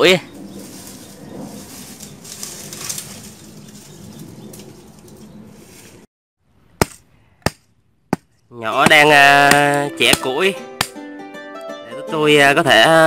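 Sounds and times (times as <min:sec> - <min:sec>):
brush and branches rustling and cracking: 0:00.0 - 0:06.1.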